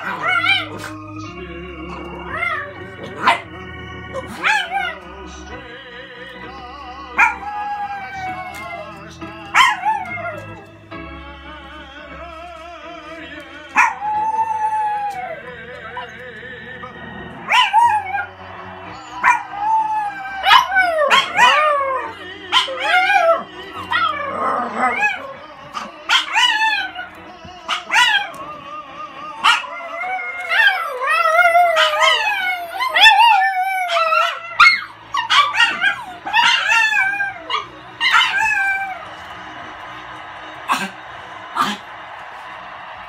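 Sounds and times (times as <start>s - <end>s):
small dog howling and yipping: 0.0s - 0.9s, 17.5s - 18.2s, 19.2s - 27.1s, 29.4s - 39.0s
background music: 0.0s - 43.0s.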